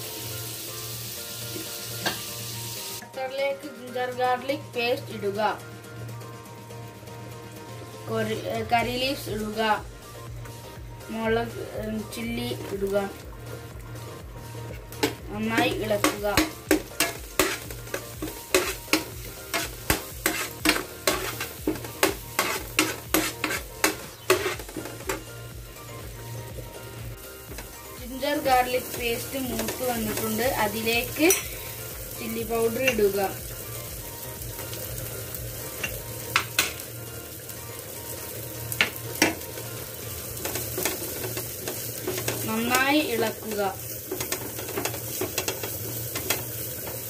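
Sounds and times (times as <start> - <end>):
food sizzling in butter: 0.0 - 3.0, 3.8 - 47.0
spoon scraping a frying pan: 14.7 - 25.3, 31.1 - 31.8, 40.4 - 42.8.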